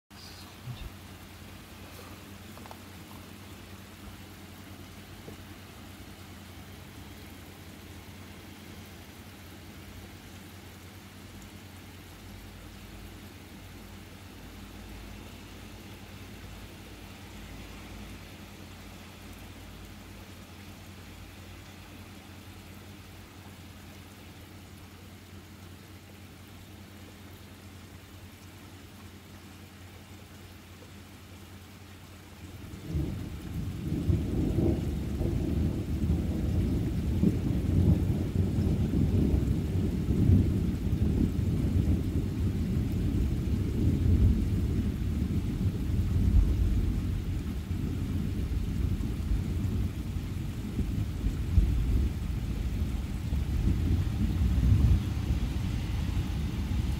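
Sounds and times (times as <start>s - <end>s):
heavy rain hissing: 0.1s - 56.9s
low steady hum: 0.1s - 56.9s
thunder rumbling: 32.6s - 56.9s.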